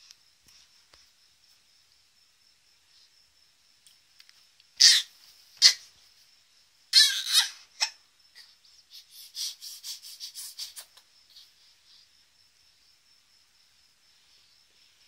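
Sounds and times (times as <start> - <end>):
baby squealing: 4.8 - 5.8, 6.9 - 8.5.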